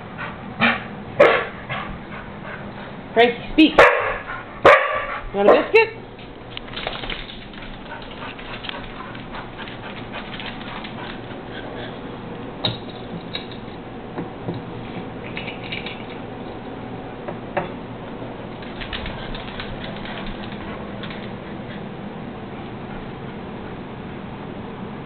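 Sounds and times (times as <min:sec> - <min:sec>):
dog claws clicking on floor: 0:06.5 - 0:11.4, 0:15.3 - 0:16.6, 0:18.6 - 0:21.4.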